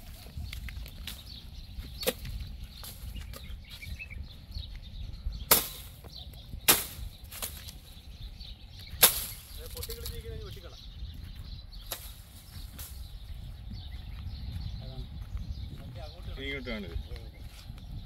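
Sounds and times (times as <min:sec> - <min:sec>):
blade chopping palm fronds: 0:05.5 - 0:07.8, 0:09.0 - 0:10.1.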